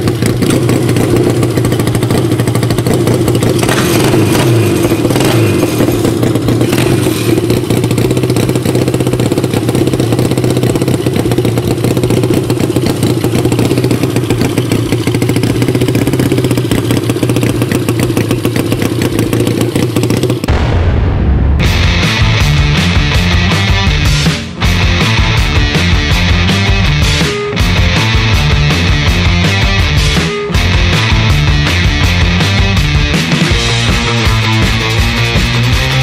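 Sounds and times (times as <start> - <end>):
mini-bike engine running: 0.0 - 20.5
rock music: 20.5 - 36.0.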